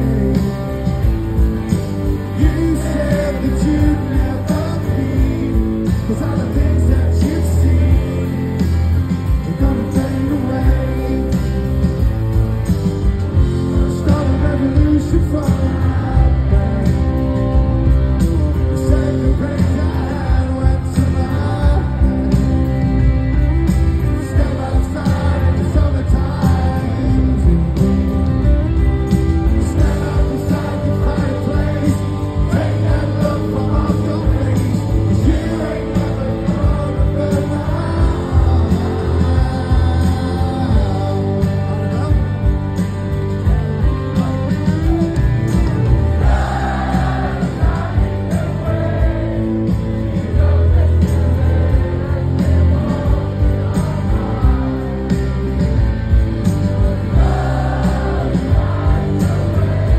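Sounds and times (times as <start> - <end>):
rock band playing: 0.0 - 59.9
person singing: 2.3 - 11.8, 29.5 - 42.6.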